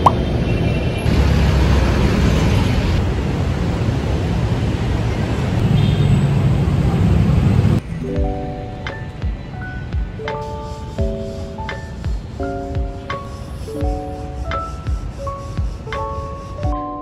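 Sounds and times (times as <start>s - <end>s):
traffic rumbling: 0.0s - 16.8s
soft music notes: 7.8s - 17.0s.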